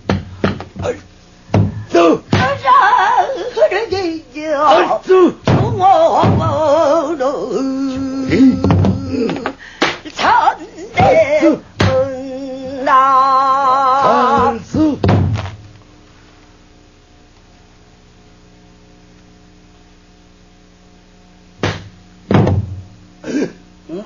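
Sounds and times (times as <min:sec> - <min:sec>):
faint steady hum: 0:00.0 - 0:24.0
barrel drum hit: 0:01.5 - 0:02.6, 0:05.4 - 0:06.6, 0:15.0 - 0:15.6, 0:21.6 - 0:22.9
woman singing with vibrato: 0:02.1 - 0:15.0.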